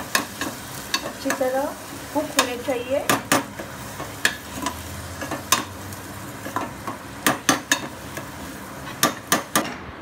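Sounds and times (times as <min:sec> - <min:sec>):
food sizzling in pan: 0:00.0 - 0:09.7.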